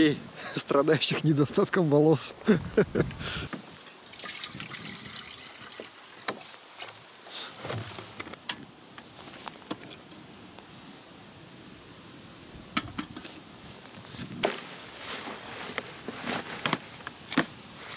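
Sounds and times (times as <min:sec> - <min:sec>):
water pouring into metal kettle: 0:04.0 - 0:06.4.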